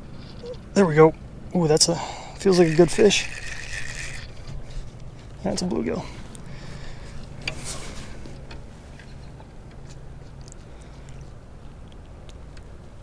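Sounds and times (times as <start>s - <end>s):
steady low hum: 0.0s - 13.0s
clicks and scrapes of fish handling: 2.5s - 5.4s.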